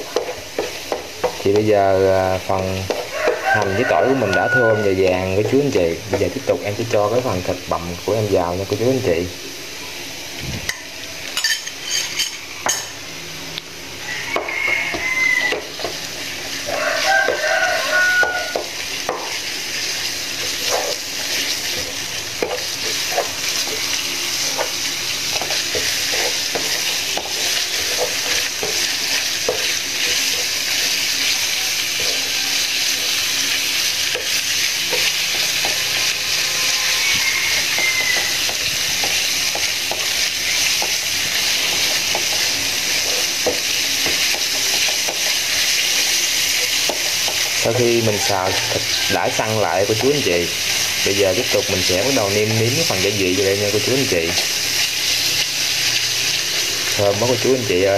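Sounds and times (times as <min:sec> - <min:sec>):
meat sizzling in hot oil: 0:00.0 - 0:57.9
wooden spatula scraping pan: 0:14.9 - 0:30.9.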